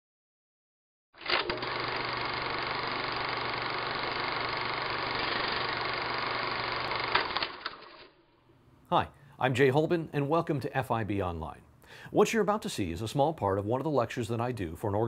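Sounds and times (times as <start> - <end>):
mechanical running noise: 1.2 - 8.2.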